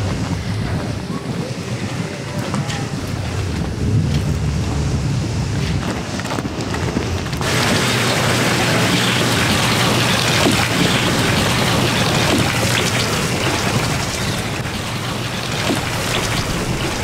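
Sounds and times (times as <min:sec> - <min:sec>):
rain hissing: 0:00.1 - 0:17.0
low rumble: 0:02.9 - 0:07.4.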